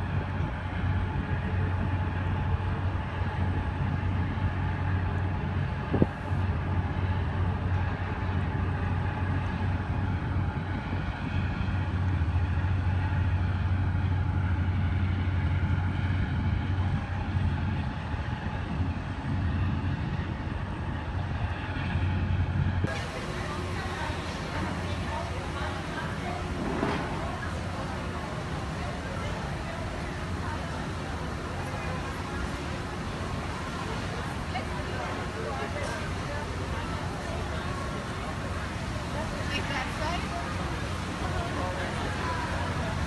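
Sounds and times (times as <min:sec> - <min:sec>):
boat engine drone: 0:00.0 - 0:43.0
water rushing: 0:22.9 - 0:43.0.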